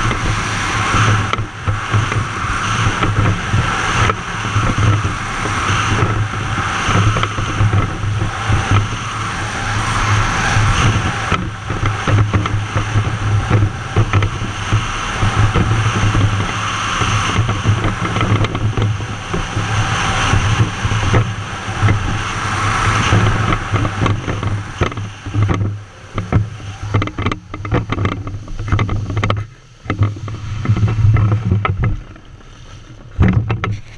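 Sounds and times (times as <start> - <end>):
jet ski engine droning: 0.0 - 33.9.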